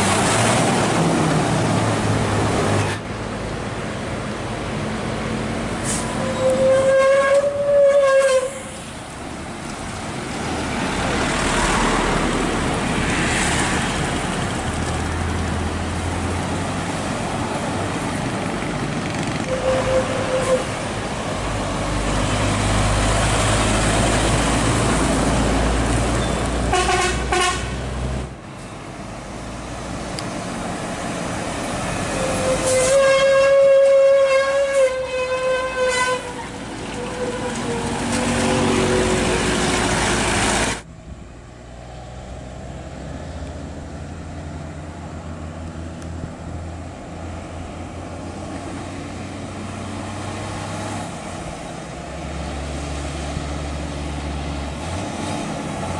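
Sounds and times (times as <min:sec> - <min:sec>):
truck air horn blasts: 0:05.9 - 0:08.8, 0:19.4 - 0:20.8, 0:26.7 - 0:27.8, 0:32.1 - 0:38.2
diesel truck engines running: 0:08.6 - 0:33.8, 0:35.7 - 0:55.9.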